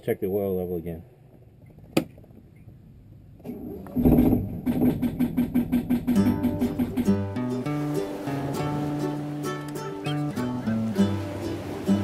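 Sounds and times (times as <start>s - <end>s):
strummed plucked-string music: 5.9s - 12.0s.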